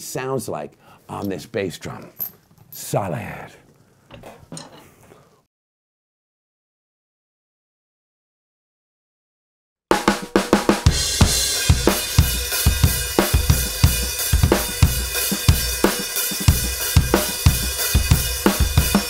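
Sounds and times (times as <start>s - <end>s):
bass drum: 9.9s - 19.0s
snare drum: 9.9s - 19.0s.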